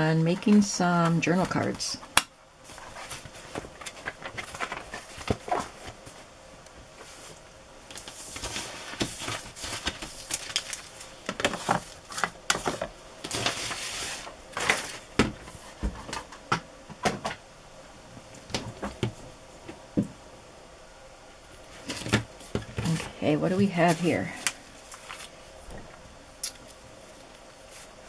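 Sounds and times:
paper rustling and sliding: 0:02.6 - 0:06.3, 0:07.0 - 0:16.2, 0:23.8 - 0:25.4.

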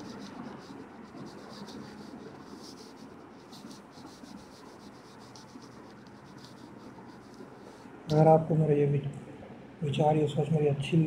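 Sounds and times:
writing strokes on touchscreen: 0:00.0 - 0:07.8.

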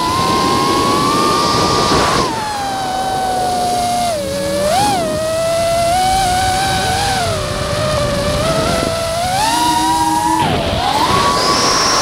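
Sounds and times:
drone propellers whining: 0:00.0 - 0:12.0
rush of air: 0:10.0 - 0:12.0.

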